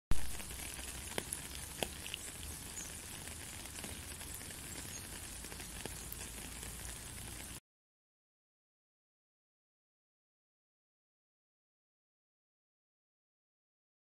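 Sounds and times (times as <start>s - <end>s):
raindrops tapping: 0.1s - 7.6s
steady rain on wet road: 0.1s - 7.6s.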